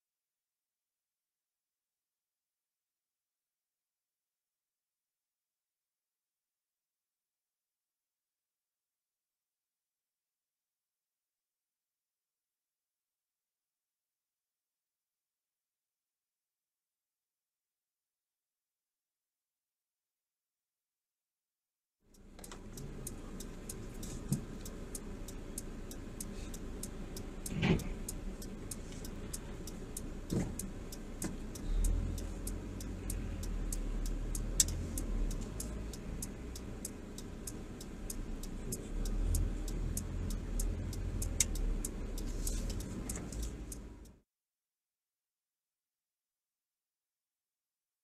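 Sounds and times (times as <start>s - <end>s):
car road and engine noise: 22.1s - 44.2s.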